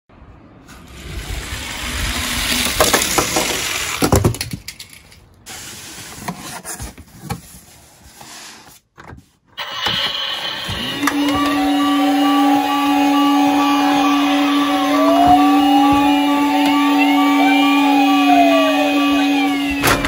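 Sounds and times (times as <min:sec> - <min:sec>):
toy cars rolling down wooden ramp: 0:00.7 - 0:05.3
toy cars clicking and clattering: 0:02.3 - 0:05.4.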